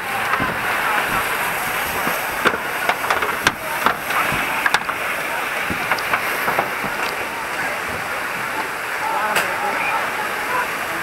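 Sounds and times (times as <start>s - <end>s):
sharp cracks: 0.0s - 7.4s
fire hose spraying water: 0.0s - 11.0s.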